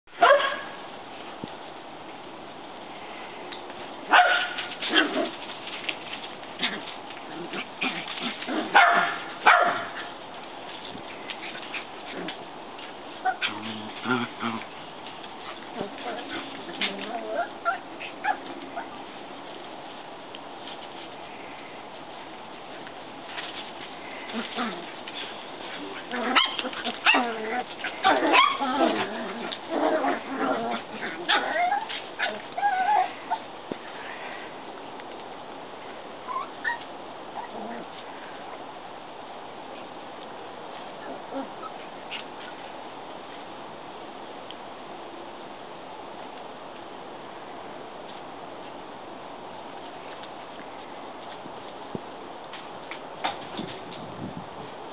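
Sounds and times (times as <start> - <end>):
dog barking: 0.2 - 0.8, 4.1 - 4.6, 8.7 - 10.0
puppies whining and yipping: 15.7 - 19.0, 25.7 - 33.5, 36.2 - 37.7.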